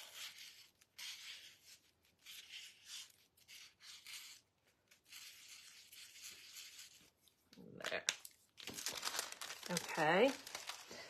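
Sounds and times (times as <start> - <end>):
marker scratching on paper: 0.0 - 7.1.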